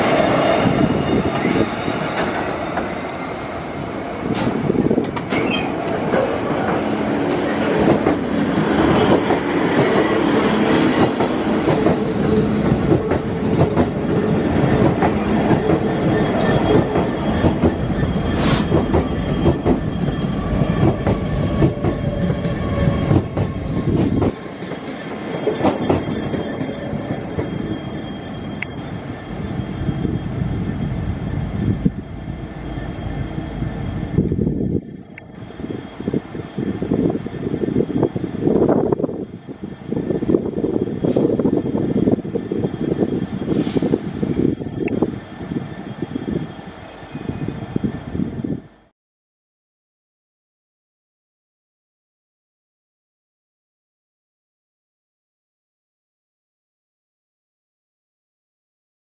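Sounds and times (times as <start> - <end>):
metallic wheel squeals: 0.1 - 3.4, 5.3 - 5.8, 10.6 - 13.0, 15.8 - 23.7, 24.8 - 38.1
train wheels clicking over rail joints: 4.2 - 20.1.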